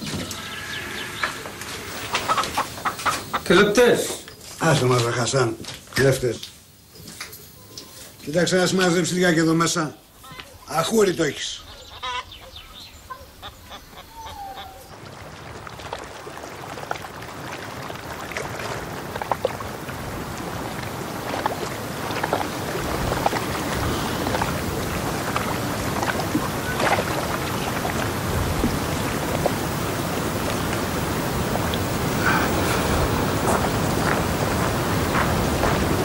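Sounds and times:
hen clucking: 0.0s - 3.8s, 10.1s - 15.0s
steady rushing outdoor noise: 14.9s - 36.0s.

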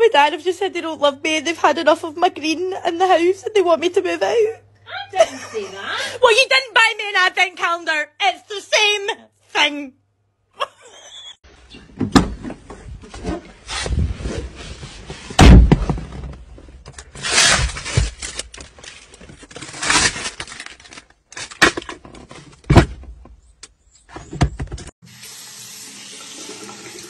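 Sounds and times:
clunks and knocks of car parts: 11.9s - 13.3s, 15.4s - 17.0s, 21.6s - 23.4s, 24.1s - 24.9s
loud thump: 15.4s - 16.3s.

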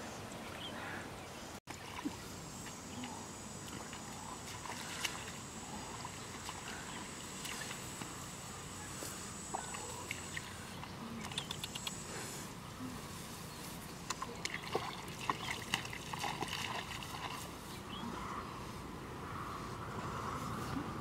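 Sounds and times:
high buzz of insects: 1.7s - 12.7s
feet wading through muddy water: 1.7s - 18.3s.

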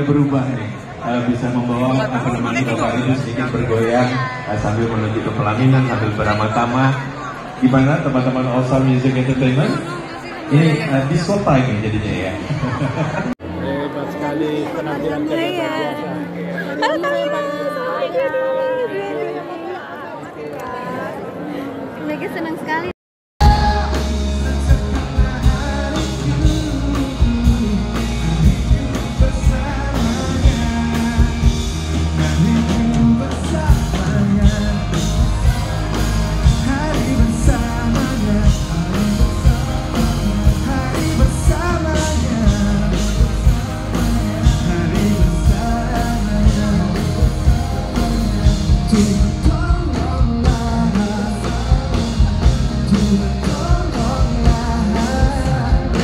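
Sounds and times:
person singing into a microphone: 23.4s - 56.0s
pop-rock band playing: 23.4s - 56.0s
steady drum beat: 23.4s - 56.0s.

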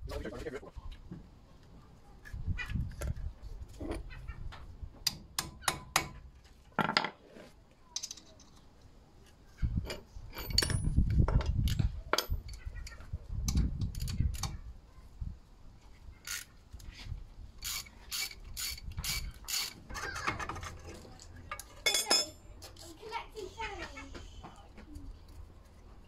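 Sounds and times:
ratchet wrench clicks: 16.2s - 16.5s, 17.6s - 19.8s.

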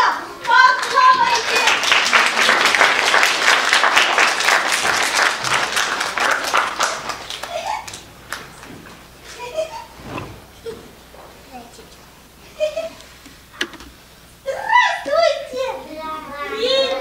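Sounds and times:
children calling out: 0.0s - 1.9s, 14.4s - 17.0s
audience applauding: 0.4s - 8.8s.

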